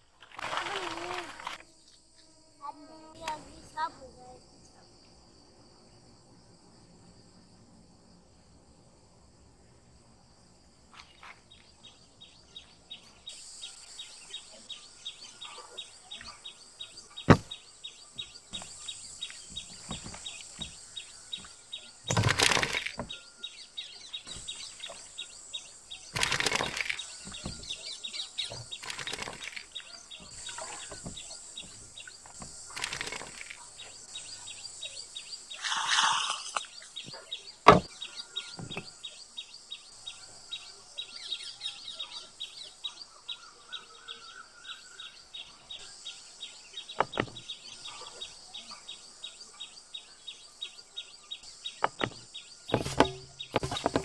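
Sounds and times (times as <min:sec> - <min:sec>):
birds chirping: 0:00.0 - 0:54.0
high insect buzz with ticking: 0:00.3 - 0:43.3.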